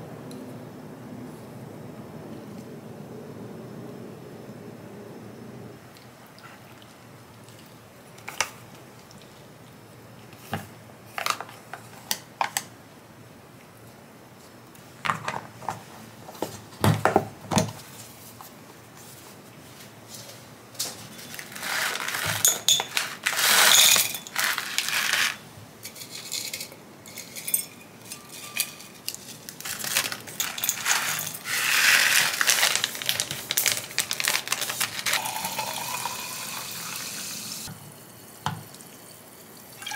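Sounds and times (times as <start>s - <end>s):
hissing rustling noise: 21.0s - 25.4s, 29.0s - 35.5s
dishes and utensils clinking: 21.8s - 24.9s, 25.8s - 31.8s.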